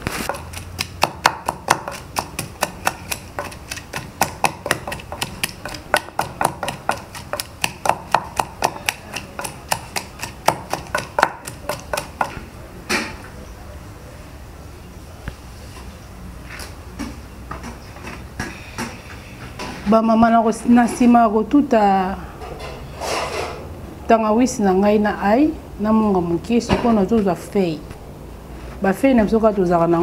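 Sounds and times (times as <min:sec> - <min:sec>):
kitchen utensil knocking garlic: 0:00.3 - 0:12.4.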